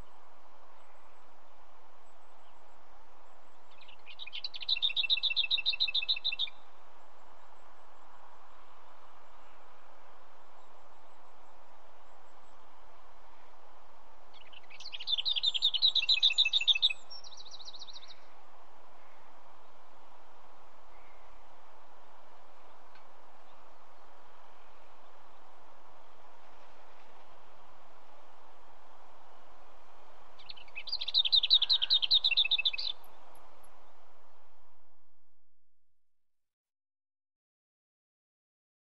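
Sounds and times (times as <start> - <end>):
faint hiss: 0.0 - 35.4
bird singing rattling trill: 3.7 - 6.6, 14.4 - 18.2, 30.4 - 33.2.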